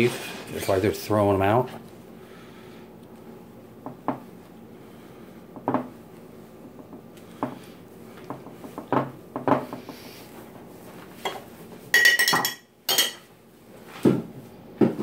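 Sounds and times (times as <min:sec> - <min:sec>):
dishes and cutlery clinking: 0:11.2 - 0:13.3.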